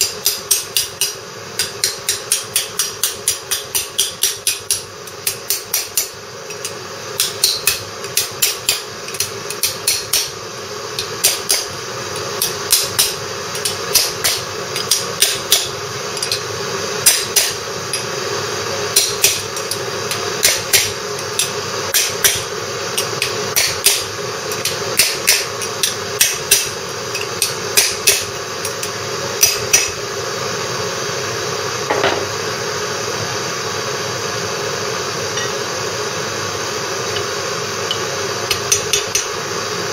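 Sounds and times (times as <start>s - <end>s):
hammer tapping metal: 0.0s - 10.3s, 11.0s - 16.4s, 17.0s - 18.1s, 18.9s - 22.4s, 23.0s - 30.0s, 37.9s - 39.3s.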